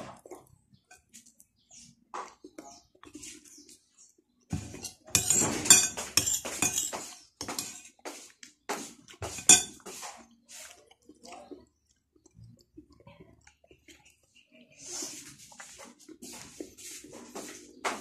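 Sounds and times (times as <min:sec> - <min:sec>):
cutlery clinking against ceramic bowl: 0:04.5 - 0:08.0, 0:09.2 - 0:10.0.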